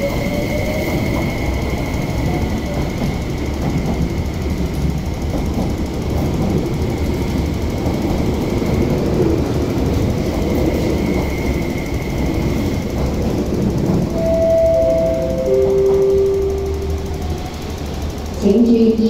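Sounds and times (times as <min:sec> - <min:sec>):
train wheels rumbling: 0:00.0 - 0:19.0
faint high tone: 0:14.2 - 0:17.2.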